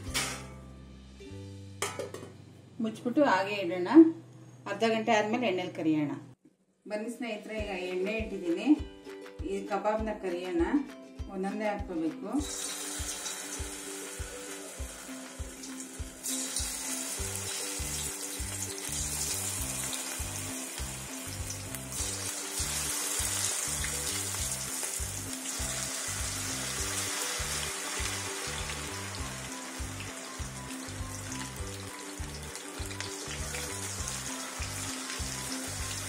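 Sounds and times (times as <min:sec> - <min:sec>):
food sizzling in hot oil: 0:12.4 - 0:36.0.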